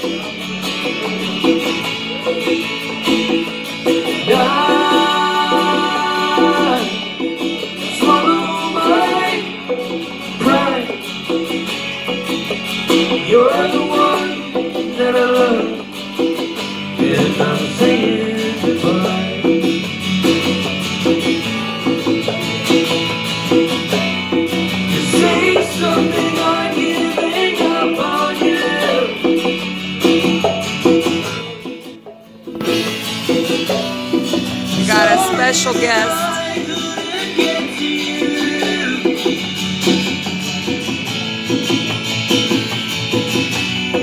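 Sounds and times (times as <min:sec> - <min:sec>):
conga drums: 0:00.0 - 0:44.0
man singing: 0:04.2 - 0:07.0, 0:34.8 - 0:39.0
acoustic guitar strumming: 0:32.6 - 0:36.9.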